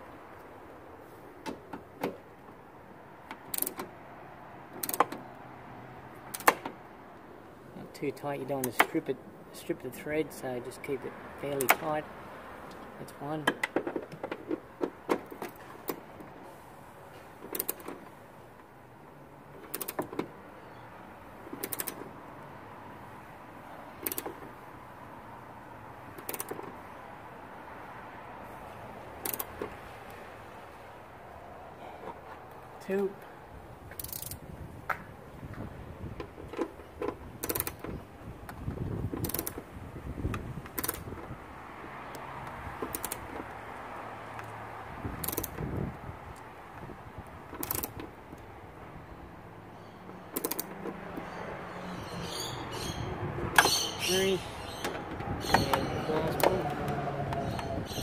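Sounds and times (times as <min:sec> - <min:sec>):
ratchet wrench clicking: 0:04.8 - 0:05.0, 0:21.6 - 0:22.0, 0:24.0 - 0:24.3, 0:29.2 - 0:29.5, 0:33.9 - 0:34.4, 0:37.4 - 0:37.8, 0:39.2 - 0:39.6, 0:45.2 - 0:45.6, 0:47.6 - 0:48.0, 0:50.4 - 0:50.7.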